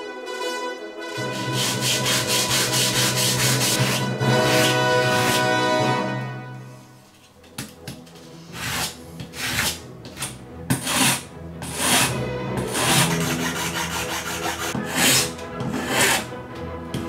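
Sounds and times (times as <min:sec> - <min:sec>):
background music: 0:00.0 - 0:17.0
hand file rasping on wood: 0:01.4 - 0:05.5, 0:08.5 - 0:16.3.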